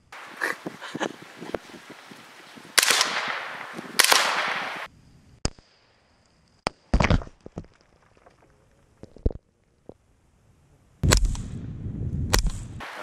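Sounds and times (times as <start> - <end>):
suppressed gunshots with echo: 2.8 - 4.9.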